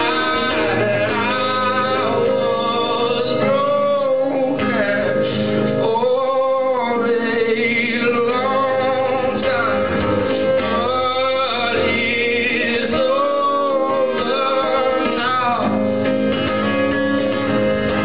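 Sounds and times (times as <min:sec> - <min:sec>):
acoustic guitar: 0:00.0 - 0:18.0
man singing: 0:00.0 - 0:18.0.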